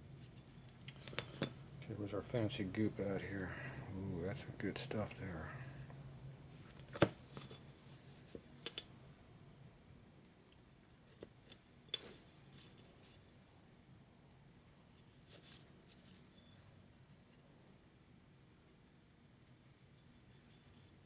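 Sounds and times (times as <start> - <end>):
metallic clinks and taps: 8.6 - 9.0.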